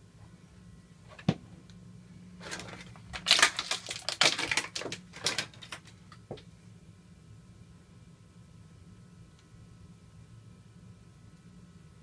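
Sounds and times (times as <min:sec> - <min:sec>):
plastic tray crackling: 0:02.4 - 0:06.0.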